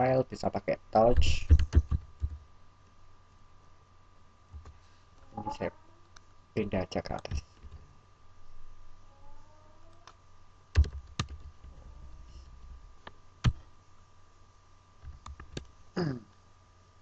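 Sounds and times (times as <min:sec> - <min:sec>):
faint steady hum: 0:00.0 - 0:17.0
keyboard key presses: 0:10.7 - 0:11.6.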